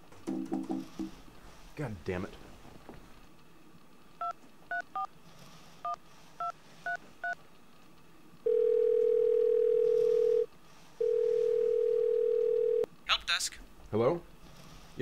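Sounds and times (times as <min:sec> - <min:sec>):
steady telephone tone: 0:08.5 - 0:12.9.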